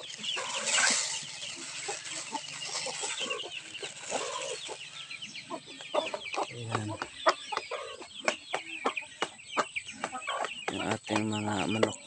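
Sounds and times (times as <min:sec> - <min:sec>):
rice poured into plastic basin: 0:00.0 - 0:04.6
chickens clucking: 0:00.0 - 0:12.0
chicks peeping: 0:00.0 - 0:12.0.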